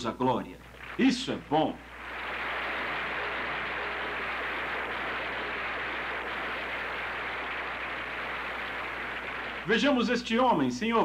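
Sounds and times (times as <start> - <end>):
large audience applauding: 0.6 - 10.2.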